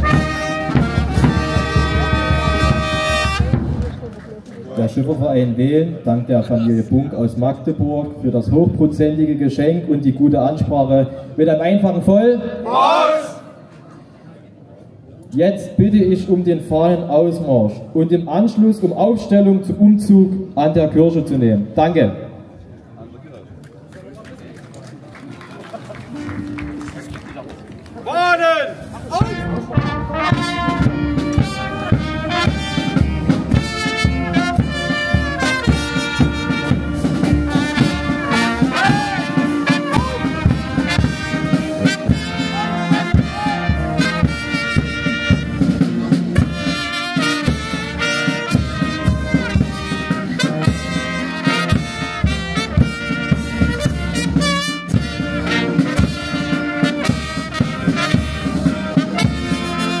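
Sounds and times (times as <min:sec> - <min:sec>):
brass band playing a march: 0:00.0 - 0:04.1, 0:12.6 - 0:13.4, 0:25.9 - 0:27.2, 0:28.7 - 1:00.0.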